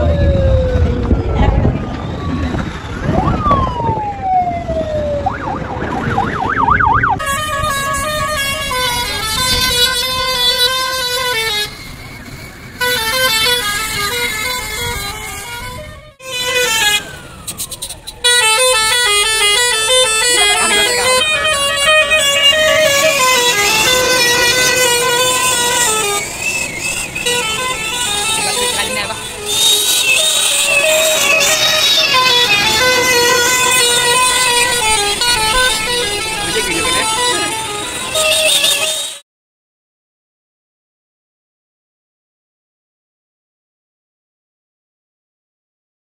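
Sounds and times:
siren wail and warble: 0.0 - 39.0
bus engine noise: 0.0 - 39.2
bus musical horn: 7.2 - 39.2.

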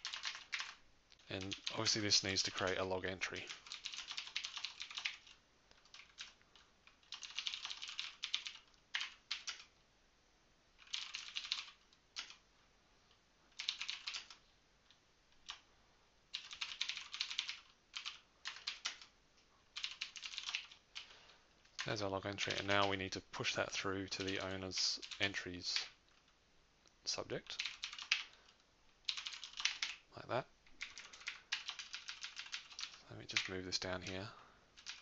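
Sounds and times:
typing on keyboard: 0.0 - 2.0, 3.4 - 9.7, 10.8 - 12.4, 13.6 - 14.4, 15.4 - 15.6, 16.3 - 19.1, 19.8 - 21.1, 24.1 - 26.0, 27.5 - 28.4, 29.1 - 30.0, 30.8 - 33.5, 34.8 - 35.0.

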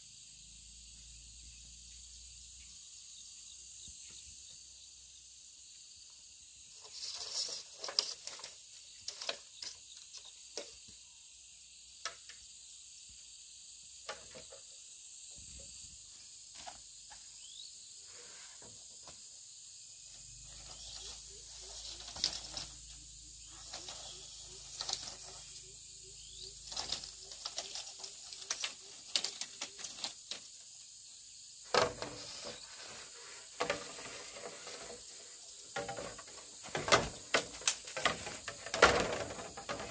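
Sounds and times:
rustles and clicks: 6.8 - 10.8, 20.1 - 30.7, 31.7 - 39.9.

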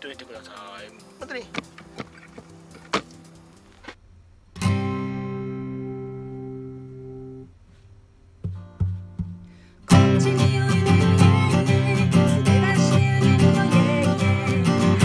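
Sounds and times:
guitar chord strummed: 4.6 - 7.5
plucked guitar notes: 4.6 - 7.5, 8.5 - 15.0.

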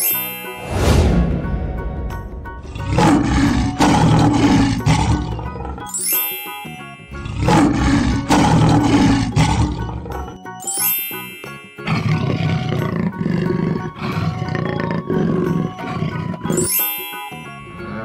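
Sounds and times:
light children's music: 0.0 - 18.0
cartoon big cat roaring: 2.6 - 5.9, 7.2 - 10.1, 11.9 - 16.5.

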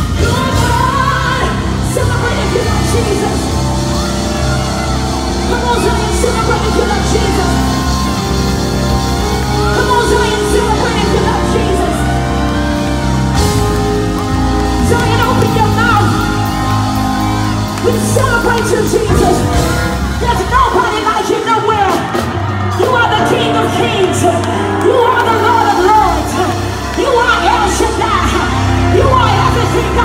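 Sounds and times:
woman singing into a microphone: 0.0 - 3.6
bass guitar: 0.0 - 30.0
keyboard chords: 0.0 - 30.0.

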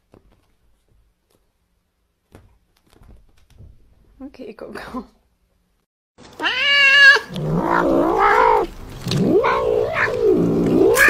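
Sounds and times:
cat meowing and yowling: 6.4 - 11.0.

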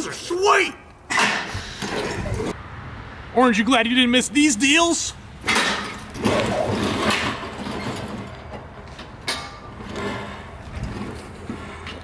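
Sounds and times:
trebuchet throwing clatter: 5.4 - 12.0.

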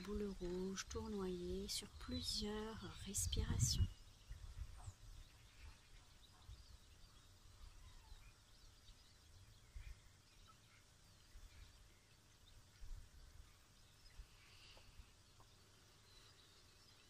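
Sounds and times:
wind on microphone: 0.0 - 5.3
faint bird chirps: 0.4 - 17.0.

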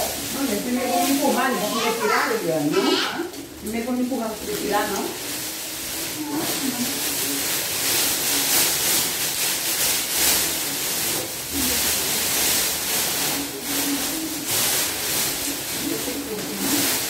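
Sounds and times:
plastic wrapping rustling and crinkling: 0.0 - 17.0.

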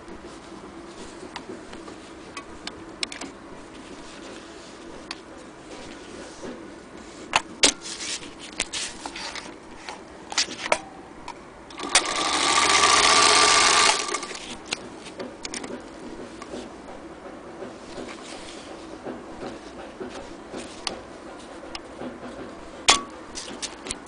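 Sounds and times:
sharp clicks and knocks: 8.5 - 24.0
sewing machine stitching: 11.7 - 14.7.

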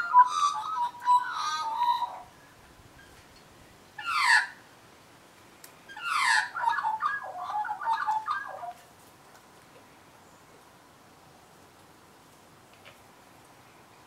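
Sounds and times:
magpie warbling: 0.0 - 2.2.

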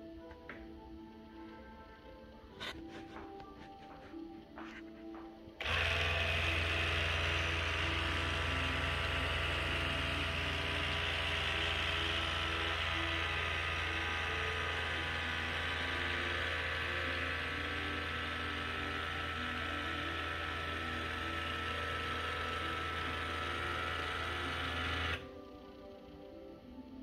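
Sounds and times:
engine or generator idling: 5.6 - 25.2.

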